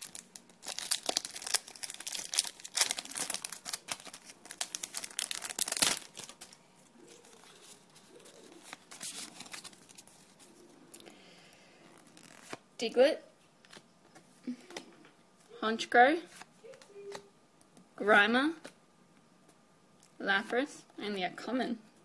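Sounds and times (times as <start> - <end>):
foil wrapper crinkling and tearing: 0.0 - 11.0, 11.8 - 12.6.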